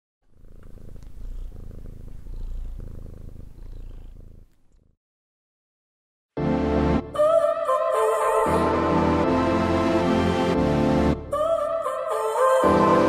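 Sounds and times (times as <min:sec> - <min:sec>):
cat purring: 0:00.2 - 0:05.0.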